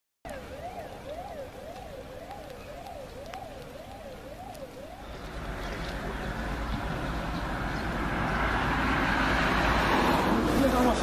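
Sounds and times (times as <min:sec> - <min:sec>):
vehicle rushing hiss and rumble: 0:05.0 - 0:11.0.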